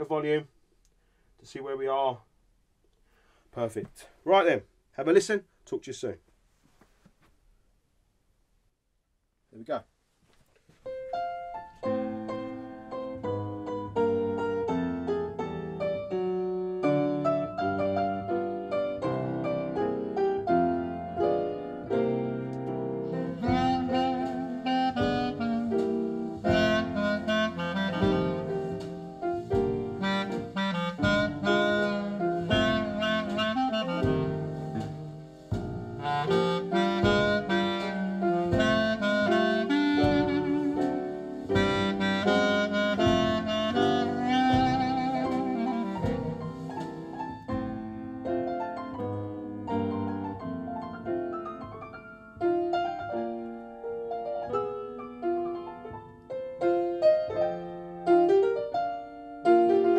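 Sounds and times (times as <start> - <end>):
piano: 10.5 - 59.9
wind instrument melody: 23.0 - 47.5.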